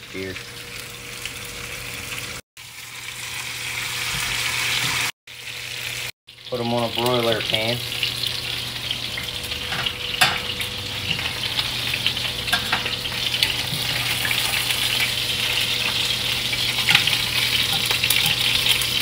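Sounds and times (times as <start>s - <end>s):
meat sizzling in frying pan: 0.0s - 19.0s
metal tongs clicking on pan: 16.8s - 18.8s.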